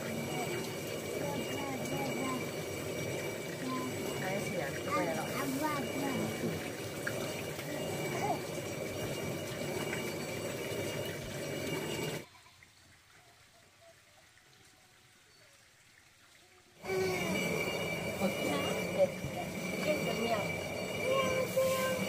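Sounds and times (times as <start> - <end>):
stone mill grinding grain: 0.0 - 12.3, 16.8 - 22.0.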